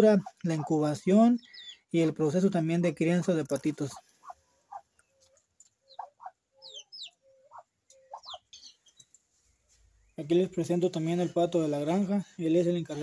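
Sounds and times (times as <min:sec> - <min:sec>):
poultry calling: 0:00.0 - 0:01.8, 0:03.1 - 0:09.9.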